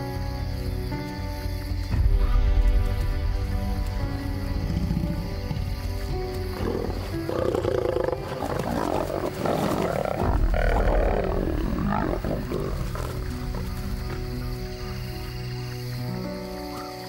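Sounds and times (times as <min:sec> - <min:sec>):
background music: 0:00.0 - 0:17.0
lions snarling and growling: 0:06.4 - 0:14.2.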